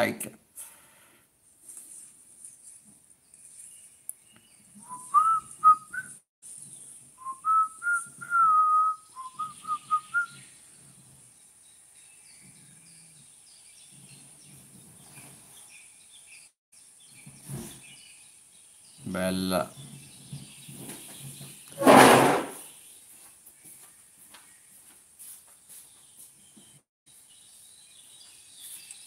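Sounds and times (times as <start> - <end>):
person whistling a tune: 4.8 - 6.2, 7.2 - 10.4.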